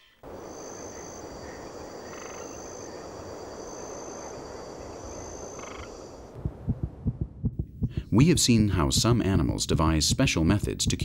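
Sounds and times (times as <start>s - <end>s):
faint high insect-like tones: 0.0s - 6.4s
frogs croaking: 0.0s - 6.9s
quick low thumps: 6.4s - 10.4s.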